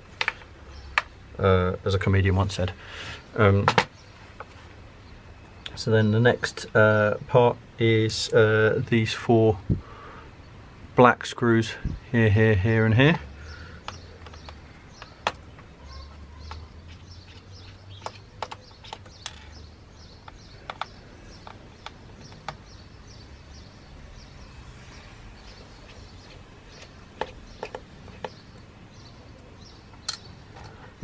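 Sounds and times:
screwdriver clicks and taps on plastic: 13.8s - 15.7s, 18.0s - 19.4s, 20.2s - 22.6s, 26.8s - 28.4s.

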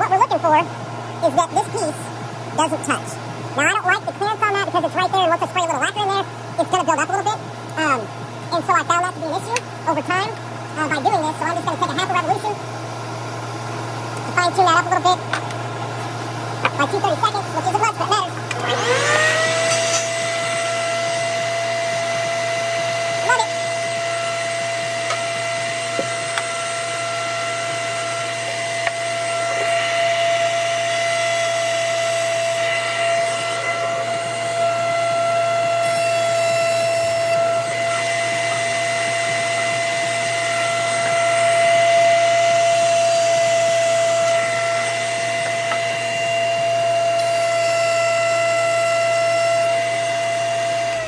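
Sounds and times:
dust collector running: 0.0s - 51.0s
router high whine: 7.0s - 51.0s.

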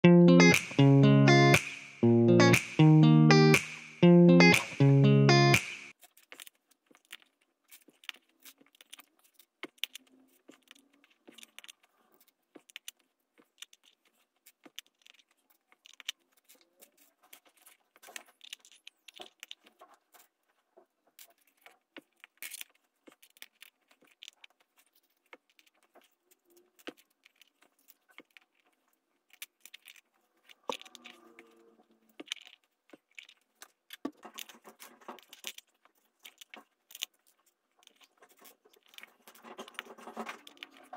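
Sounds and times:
plastic pieces clicking: 6.0s - 11.9s, 12.6s - 19.8s, 21.2s - 26.2s, 26.8s - 31.5s, 32.1s - 40.9s.

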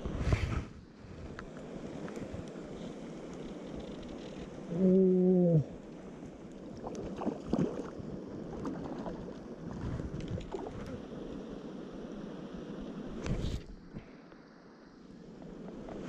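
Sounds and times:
wind noise: 0.0s - 4.7s, 6.8s - 11.2s, 12.8s - 14.0s
fish splashing in water: 6.8s - 9.5s.

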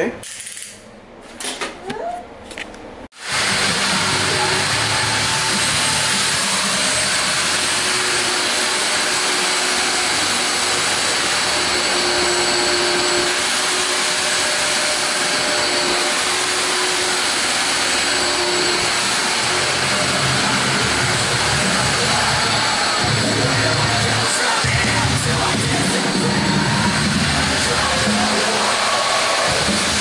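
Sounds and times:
shop vacuum sucking debris: 3.2s - 30.0s.

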